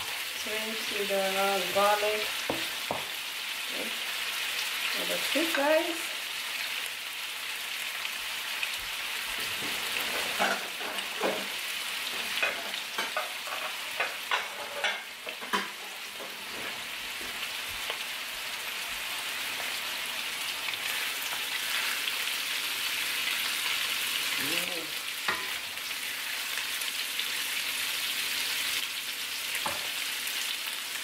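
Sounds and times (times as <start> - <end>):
prawns sizzling in butter: 0.0 - 31.0
sharp pops in frying pan: 2.5 - 3.2.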